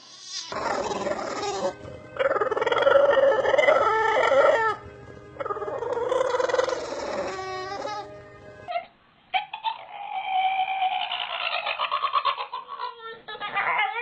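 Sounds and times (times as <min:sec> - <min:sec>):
dog wavering calls: 0:00.4 - 0:04.8, 0:05.4 - 0:08.1.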